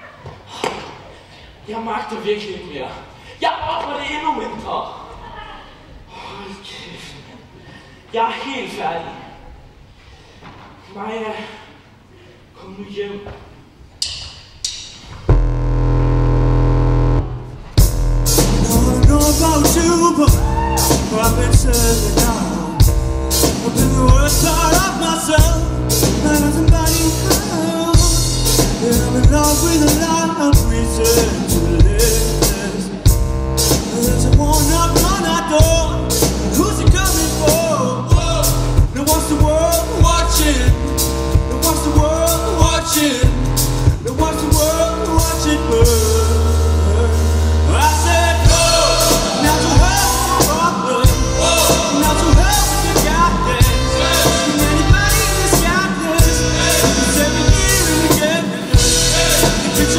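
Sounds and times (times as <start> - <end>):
live band music: 14.0 - 59.9
group of voices singing: 44.1 - 59.9.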